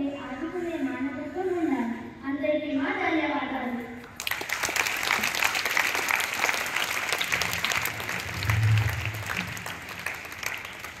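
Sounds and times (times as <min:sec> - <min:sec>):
children applauding: 0:04.2 - 0:11.0
low hum: 0:07.3 - 0:10.3.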